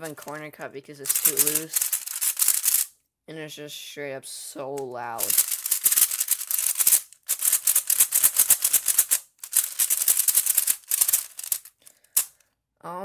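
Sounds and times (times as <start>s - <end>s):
plastic speed cube clacking: 0.0s - 2.9s, 5.2s - 12.4s.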